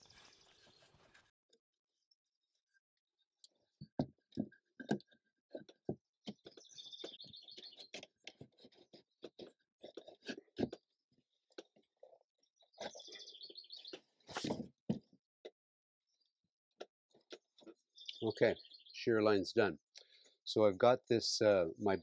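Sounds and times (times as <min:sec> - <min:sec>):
wood tapping and rubbing on bark: 0:03.8 - 0:10.9
bird chirping: 0:06.3 - 0:08.9, 0:12.5 - 0:14.5, 0:17.6 - 0:19.4.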